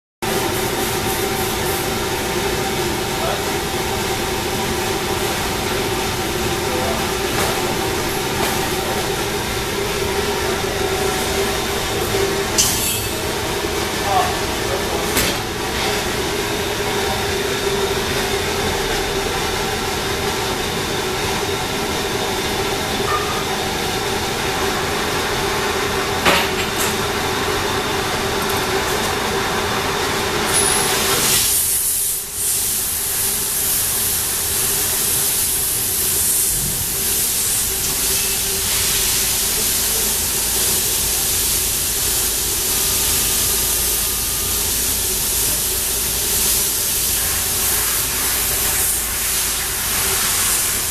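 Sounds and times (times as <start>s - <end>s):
lathe machine hum: 0.2s - 26.2s, 26.9s - 31.3s
steady hiss: 31.1s - 50.9s.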